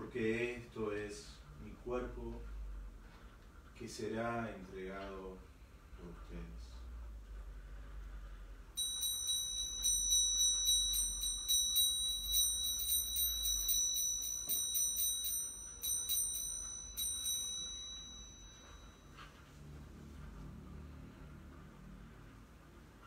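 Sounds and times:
small bell rung rapidly: 8.8s - 19.3s.

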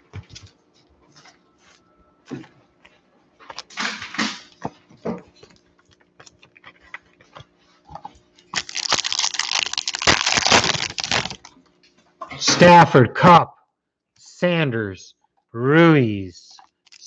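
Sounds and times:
foil wrapper crinkling and tearing: 8.5s - 11.5s, 16.7s - 17.0s.

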